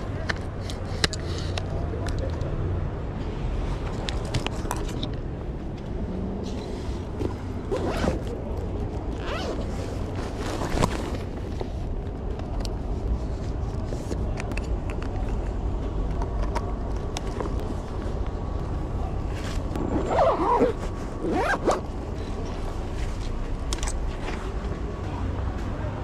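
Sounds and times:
traffic rumble: 0:00.0 - 0:26.0.

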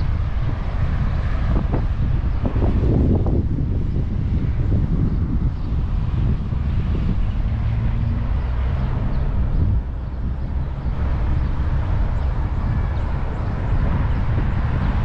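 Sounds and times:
outdoor background noise: 0:00.0 - 0:15.0
vehicle engine passing: 0:05.7 - 0:15.0.

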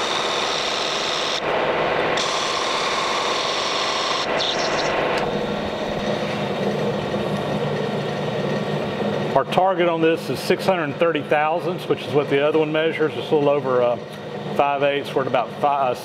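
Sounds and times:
lathe cutting hiss: 0:00.0 - 0:06.4
lathe running hum: 0:00.0 - 0:16.0.

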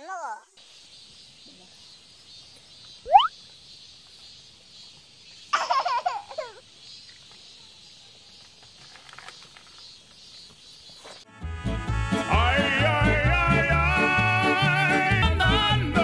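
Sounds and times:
faint outdoor background: 0:00.0 - 0:16.0
burst of laughter: 0:05.6 - 0:06.6.

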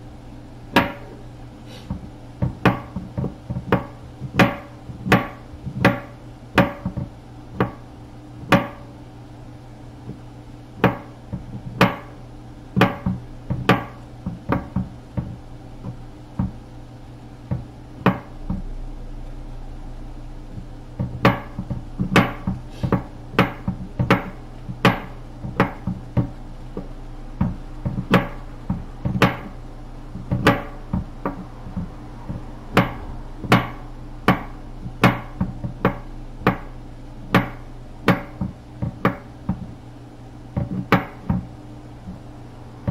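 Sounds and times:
steady low hum: 0:00.0 - 0:42.9
knife chopping on wooden board: 0:00.8 - 0:01.2, 0:01.8 - 0:07.8, 0:08.5 - 0:08.8, 0:10.8 - 0:12.1, 0:12.8 - 0:16.6, 0:17.5 - 0:18.6, 0:21.0 - 0:29.6, 0:30.2 - 0:36.7, 0:37.3 - 0:39.7, 0:40.6 - 0:41.4.

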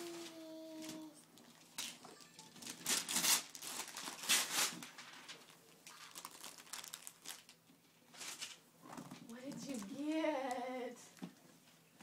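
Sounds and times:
wrapping paper tearing and crinkling: 0:01.7 - 0:08.6.

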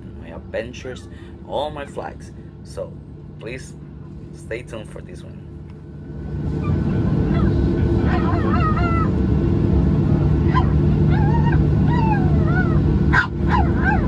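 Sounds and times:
airliner cabin rumble: 0:00.0 - 0:14.0
high wavering cries: 0:06.4 - 0:14.0.

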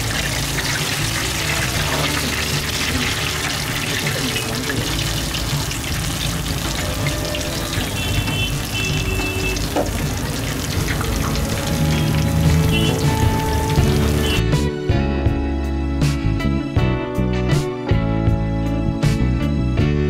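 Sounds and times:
oil sizzling and bubbling: 0:00.0 - 0:14.4.

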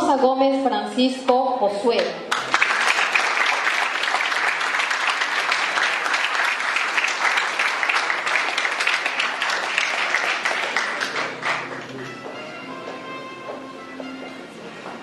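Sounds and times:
audience applauding: 0:02.3 - 0:12.4.

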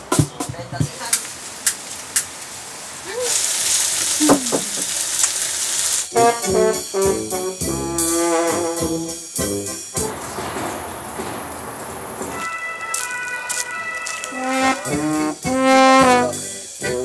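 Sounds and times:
food sizzling in a frying pan: 0:03.0 - 0:06.1
instrument playing held notes: 0:06.1 - 0:09.0, 0:12.3 - 0:17.0.

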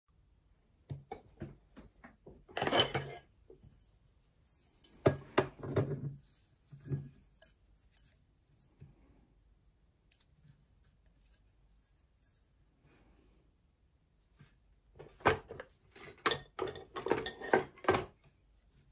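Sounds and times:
wire and metal mandrel clinking: 0:06.6 - 0:08.8.

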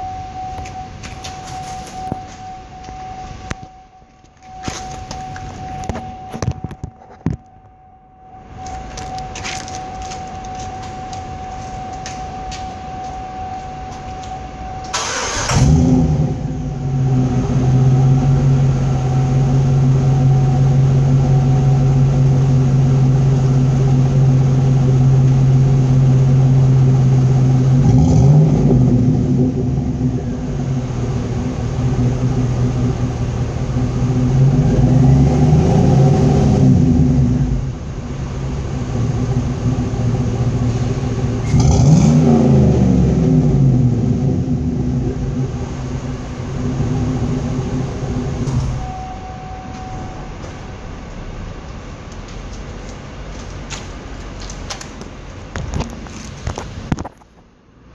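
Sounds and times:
car engine idling and revving: 0:00.0 - 0:57.9.

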